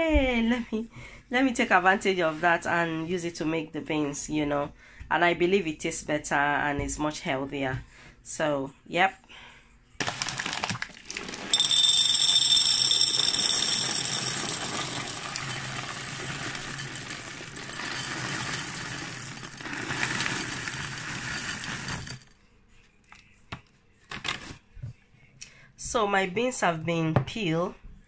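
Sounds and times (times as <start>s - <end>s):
dry beans rattling into a ceramic bowl: 10.0s - 22.3s.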